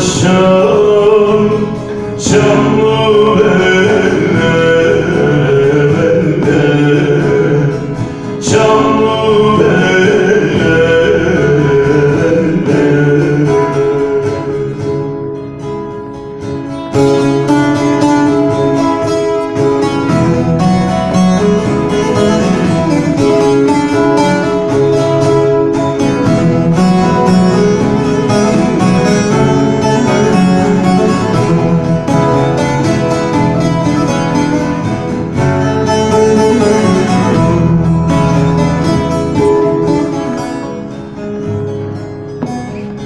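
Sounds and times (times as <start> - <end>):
low accompaniment: 0.0 - 43.0
plucked lute melody: 0.0 - 43.0.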